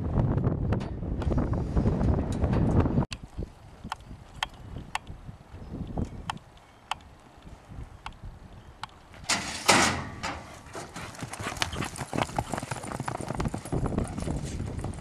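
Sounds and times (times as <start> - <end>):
horse hooves clip-clopping: 8.8 - 15.0.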